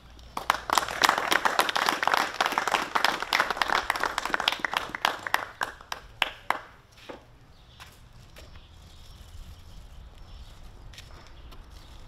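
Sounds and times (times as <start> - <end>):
small group applauding: 0.4 - 6.8.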